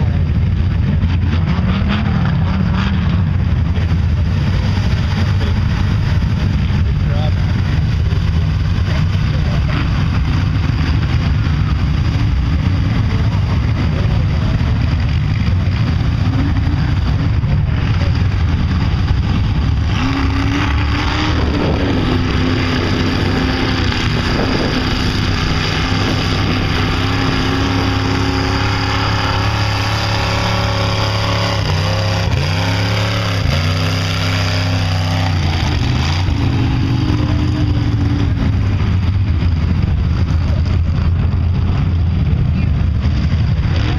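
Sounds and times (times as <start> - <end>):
truck engines revving: 0.0 - 43.9.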